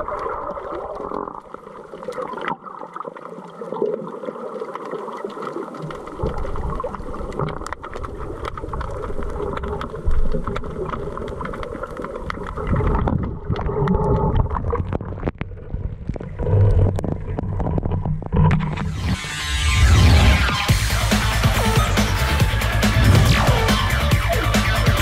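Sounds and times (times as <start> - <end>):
water sloshing and churning: 0.0 - 18.9
underwater clicks and crackles: 0.0 - 19.0.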